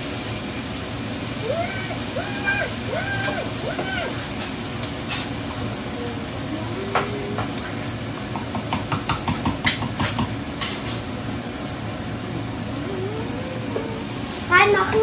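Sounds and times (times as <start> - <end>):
utensil knocking against pan: 8.4 - 10.4
food sizzling in a frying pan: 13.9 - 15.0.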